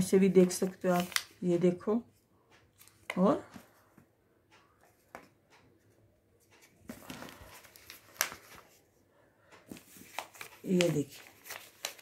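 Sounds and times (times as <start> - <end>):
paper rustling and crinkling: 0.4 - 1.4, 6.5 - 8.8, 9.7 - 12.0.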